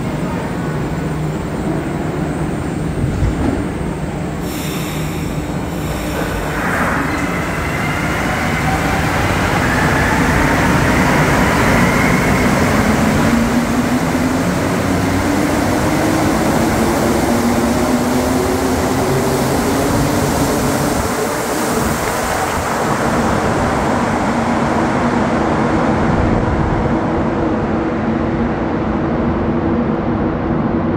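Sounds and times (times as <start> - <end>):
rumble of train running gear: 0.0 - 30.9
high hiss: 4.3 - 8.1.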